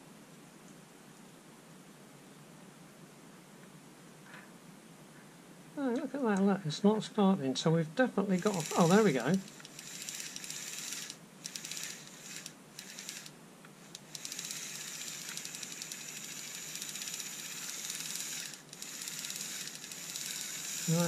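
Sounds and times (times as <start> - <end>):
cordless screwdriver motor clicking: 8.4 - 13.3, 13.9 - 21.0.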